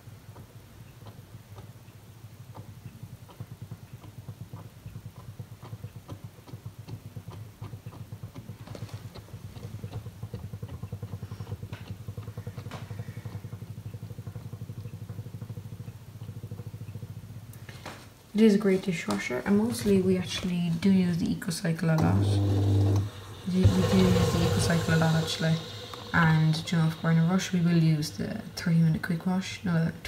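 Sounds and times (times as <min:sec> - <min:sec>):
dishwasher pump hum: 0:18.4 - 0:30.0
water spraying: 0:21.8 - 0:30.0.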